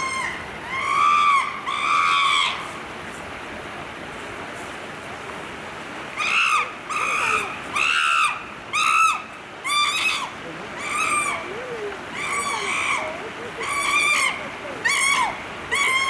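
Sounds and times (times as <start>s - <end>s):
chimpanzee screaming: 0.0s - 2.6s, 6.2s - 16.0s.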